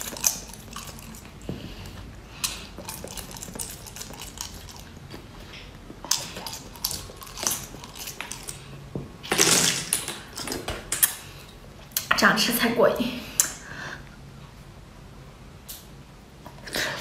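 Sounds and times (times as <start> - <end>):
wet slurping and chewing: 0.0 - 11.3.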